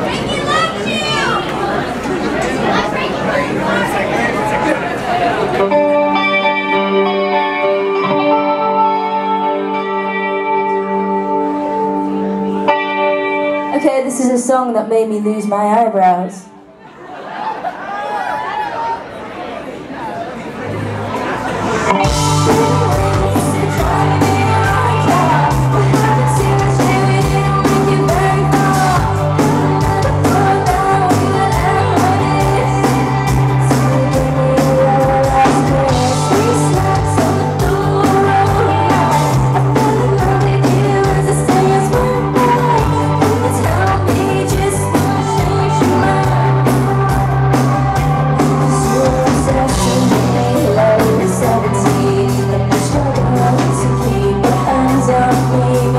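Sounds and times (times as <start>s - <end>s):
electric guitars: 5.4s - 15.4s, 20.8s - 55.9s
bass guitar: 5.6s - 13.8s, 20.8s - 55.9s
drums: 20.6s - 55.9s
woman singing lead vocal: 22.0s - 55.9s.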